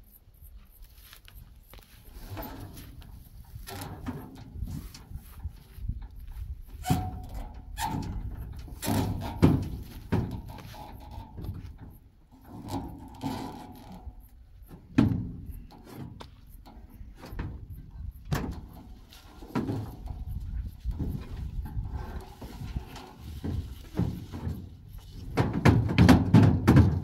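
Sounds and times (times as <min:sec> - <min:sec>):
knocks and thuds: 0:06.8 - 0:12.0, 0:14.7 - 0:16.4, 0:23.4 - 0:27.0.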